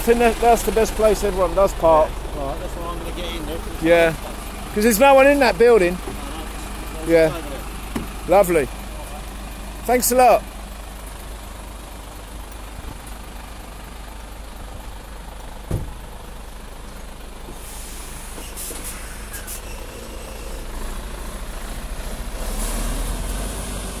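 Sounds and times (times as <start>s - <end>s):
lorry diesel engine: 0.0s - 24.0s
knock: 15.7s - 15.9s
air brake hisses: 17.5s - 20.7s.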